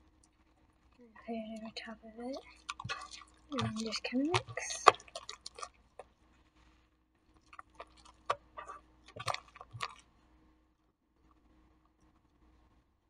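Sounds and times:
slime squelching and popping: 0:01.6 - 0:06.2, 0:07.3 - 0:10.1.

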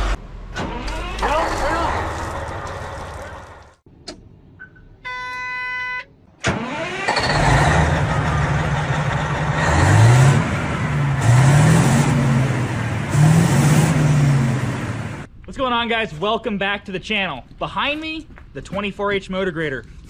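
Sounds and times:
heavy engine revving: 0:00.0 - 0:03.8, 0:06.5 - 0:15.3.

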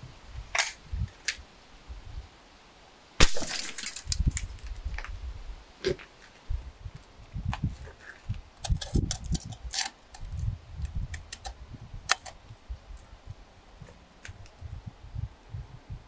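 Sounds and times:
sharp glass clicks: 0:03.2 - 0:04.7.

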